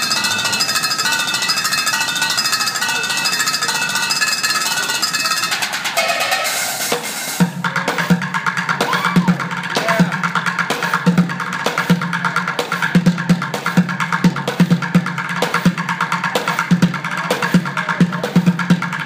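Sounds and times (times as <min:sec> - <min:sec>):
drumming on buckets and pans: 0:00.0 - 0:19.0.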